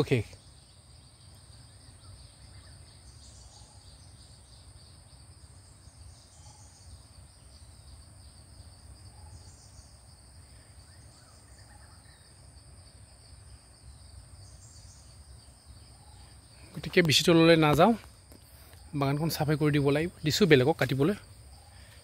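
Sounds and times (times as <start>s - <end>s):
insects droning: 0.0s - 22.0s.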